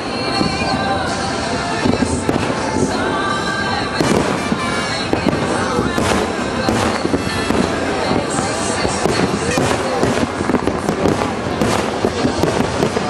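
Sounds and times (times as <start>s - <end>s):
fireworks bursting and crackling: 0.0s - 13.0s.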